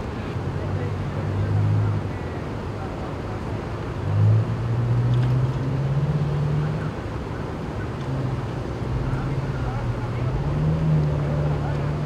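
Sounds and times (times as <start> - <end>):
road traffic: 0.0 - 12.0
vehicle engine humming: 6.8 - 12.0.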